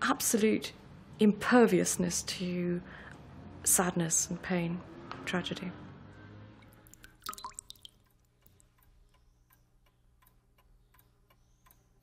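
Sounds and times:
clock ticking: 0:07.9 - 0:12.0.

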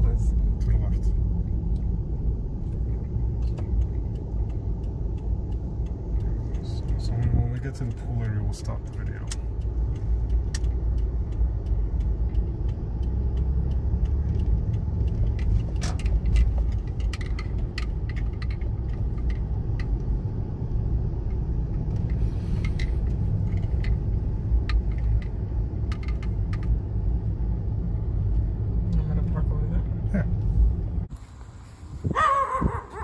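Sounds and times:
light clicks and rattles: 0:00.0 - 0:20.2, 0:21.2 - 0:29.0
car engine and road rumble: 0:00.0 - 0:33.0.

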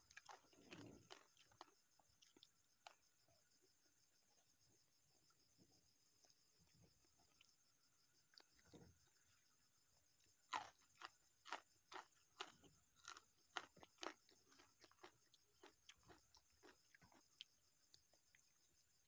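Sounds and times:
raw bean crunching while chewed: 0:00.0 - 0:03.0, 0:10.5 - 0:18.1.

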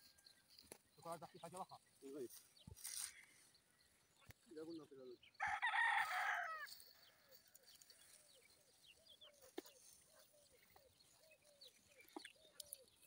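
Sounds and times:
rooster crowing: 0:05.4 - 0:06.7.

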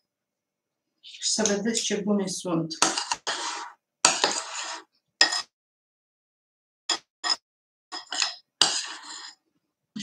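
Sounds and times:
spoons scraping glass bowl: 0:02.8 - 0:05.5, 0:06.9 - 0:09.5.

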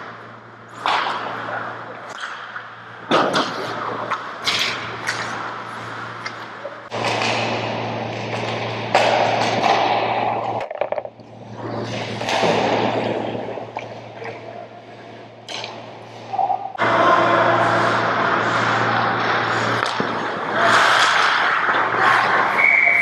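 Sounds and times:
steady low hum: 0:00.0 - 0:22.6
hockey sticks and puck knocks: 0:00.8 - 0:01.5, 0:02.1 - 0:05.5, 0:06.2 - 0:13.9, 0:19.7 - 0:21.8
skates scraping ice: 0:16.5 - 0:23.0.

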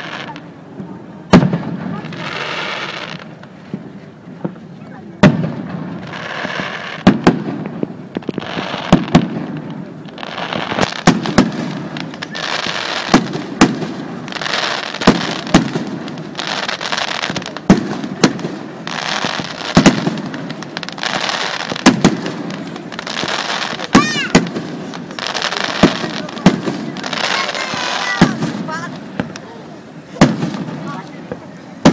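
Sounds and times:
crackling hiss: 0:00.0 - 0:31.9
firework shells bursting: 0:05.2 - 0:29.5.

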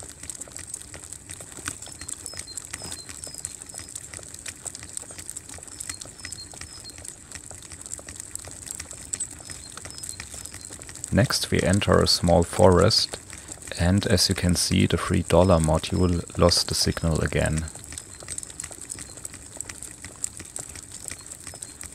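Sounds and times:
faint crackle of clicks: 0:00.0 - 0:21.9
small bird chirping: 0:01.6 - 0:04.2, 0:04.9 - 0:07.1, 0:08.8 - 0:12.3, 0:15.4 - 0:19.3, 0:20.8 - 0:21.9
steady high hiss: 0:11.1 - 0:17.8.

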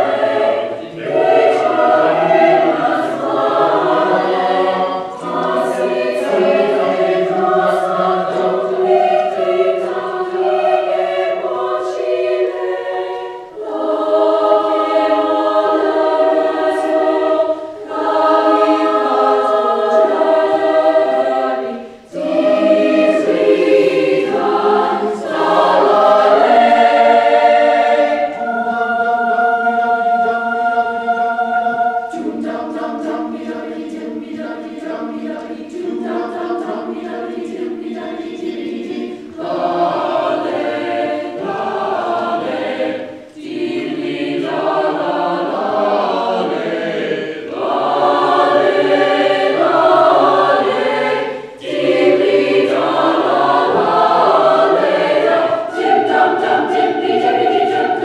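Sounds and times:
mixed choir singing in harmony: 0:00.0 - 0:58.0.

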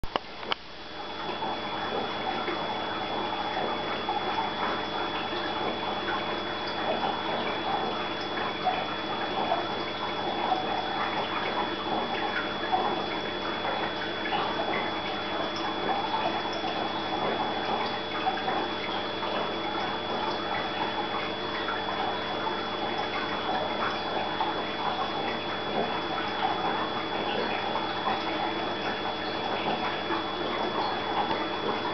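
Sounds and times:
aquarium water trickling and bubbling: 0:00.0 - 0:31.9.

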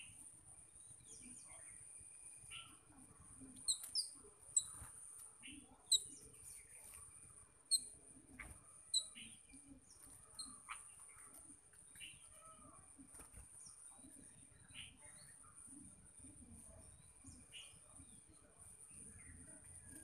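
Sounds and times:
sharp bird chirps: 0:03.6 - 0:04.8, 0:05.4 - 0:06.2, 0:07.7 - 0:09.4.

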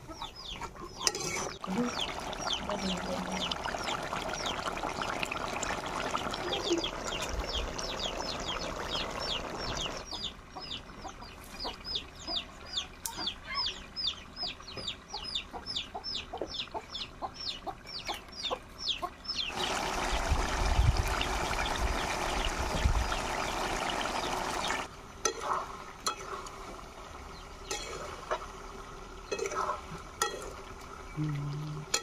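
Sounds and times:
chicken peeping: 0:00.0 - 0:01.0, 0:06.5 - 0:19.7
curry sizzling in a pot: 0:01.0 - 0:10.1, 0:19.5 - 0:31.2.

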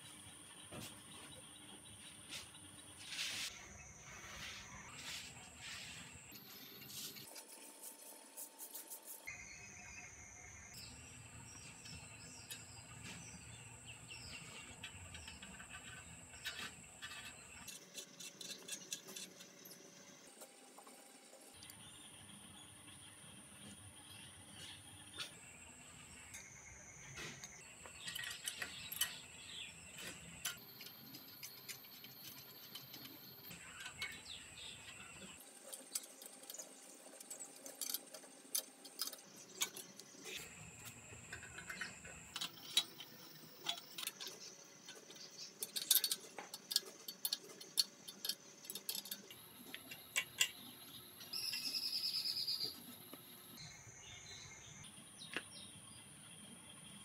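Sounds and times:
metal bicycle parts clicking: 0:14.6 - 0:19.9, 0:27.8 - 0:52.7
high chirping: 0:46.8 - 0:54.9.

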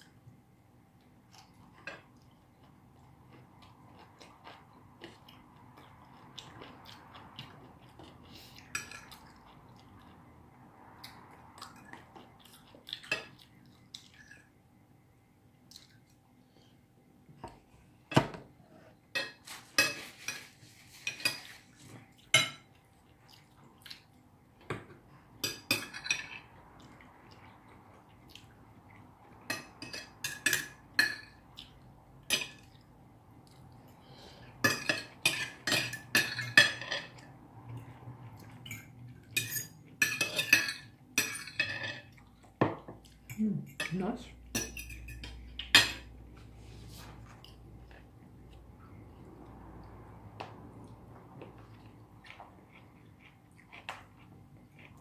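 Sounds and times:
cutlery clinking on plates: 0:19.2 - 0:22.7, 0:24.7 - 0:26.5, 0:29.4 - 0:31.4, 0:34.6 - 0:37.3, 0:38.4 - 0:46.1.

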